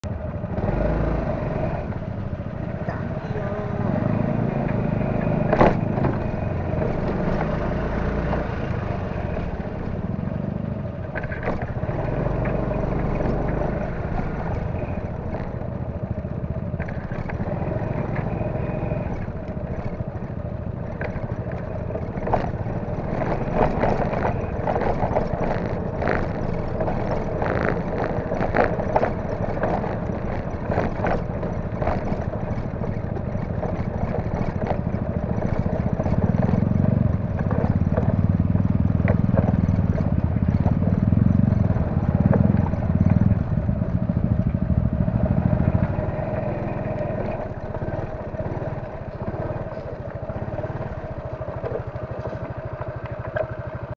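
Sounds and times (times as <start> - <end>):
scooter engine running: 0.0 - 53.9
clatter on rough gravel: 10.8 - 44.2, 45.4 - 53.9.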